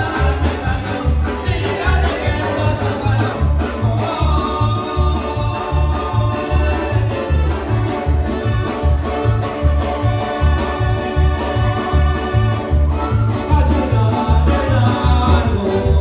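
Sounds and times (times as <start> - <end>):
electronic organ chords: 0.0 - 16.0.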